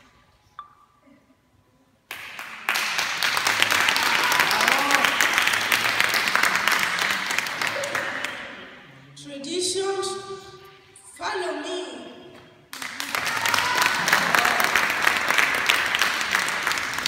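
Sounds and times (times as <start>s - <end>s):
audience applauding: 2.1s - 8.6s, 12.7s - 17.0s.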